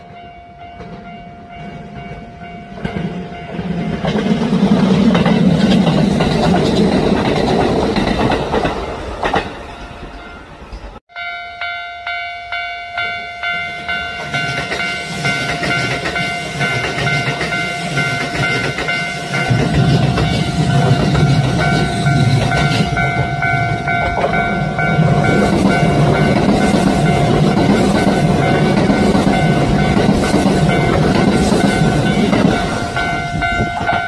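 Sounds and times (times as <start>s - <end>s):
train rumbling past: 0.0s - 34.0s
level crossing alarm ringing: 11.1s - 34.0s.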